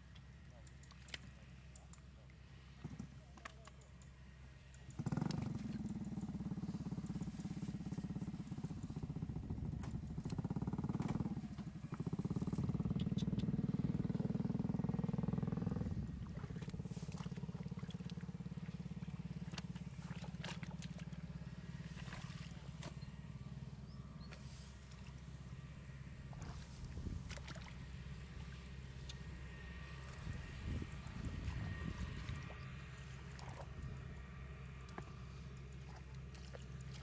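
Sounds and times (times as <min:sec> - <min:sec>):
small engine running: 0:00.0 - 0:37.0
hands splashing in muddy water: 0:16.2 - 0:23.1, 0:26.3 - 0:29.2, 0:30.0 - 0:34.1, 0:34.8 - 0:37.0.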